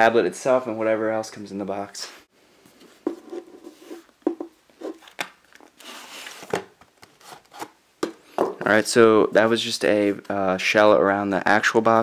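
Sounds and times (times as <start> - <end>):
cardboard sleeve scraping: 4.8 - 6.5.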